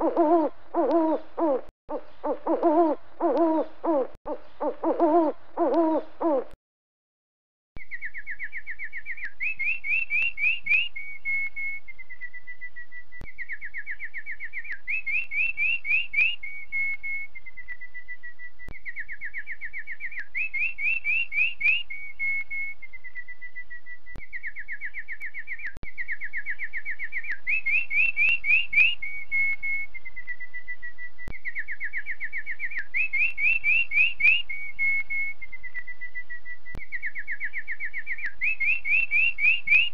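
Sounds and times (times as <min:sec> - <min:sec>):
owl hooting: 0:00.0 - 0:06.6
songbird singing: 0:00.0 - 0:06.6, 0:07.8 - 0:39.9.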